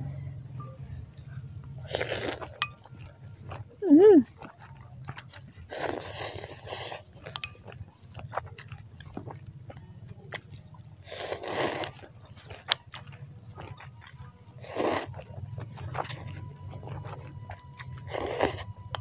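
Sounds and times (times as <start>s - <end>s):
chewing: 0.6s - 19.0s
noodles being slurped: 1.8s - 2.6s, 4.3s - 9.5s, 11.0s - 18.7s.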